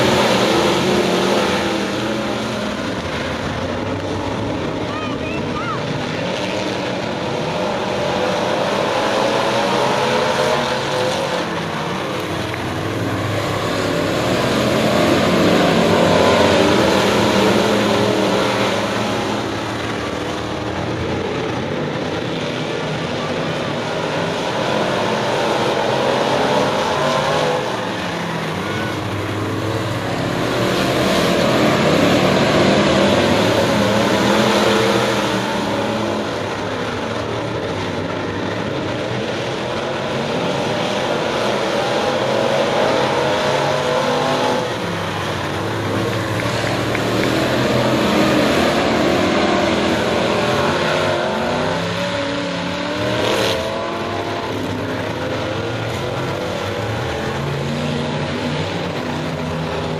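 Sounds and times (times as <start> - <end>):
race car engines: 0.0 - 59.9.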